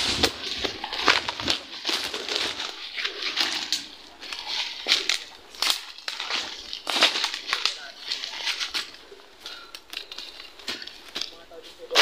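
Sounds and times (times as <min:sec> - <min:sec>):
leaves swishing against body: 0:00.0 - 0:09.0
footsteps on dry leaves: 0:00.0 - 0:12.0.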